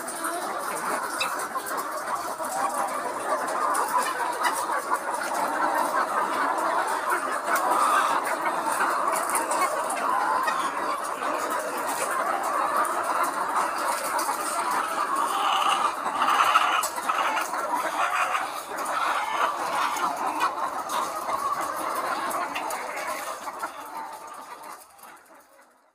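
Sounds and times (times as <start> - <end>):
hens clucking: 0.0 - 25.9.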